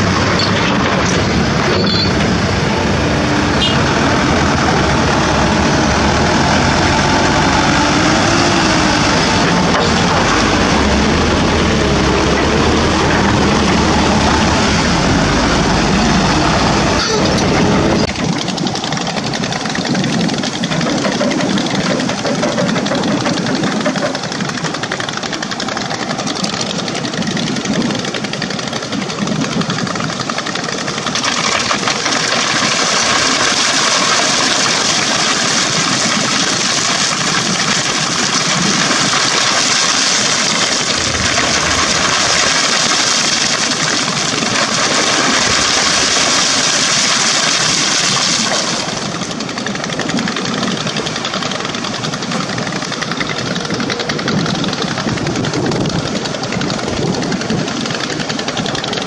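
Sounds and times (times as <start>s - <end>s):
deep close engine rumble: 0.0s - 59.0s
diesel engines running: 0.0s - 59.0s.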